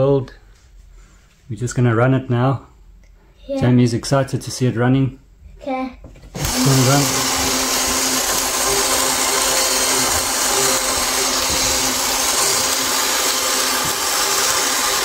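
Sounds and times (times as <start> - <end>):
small electric motor whirring: 6.4 - 15.0.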